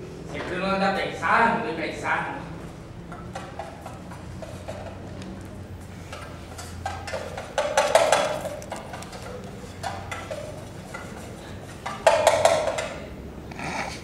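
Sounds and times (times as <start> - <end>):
rapid sharp knocks and clatter: 6.1 - 13.0.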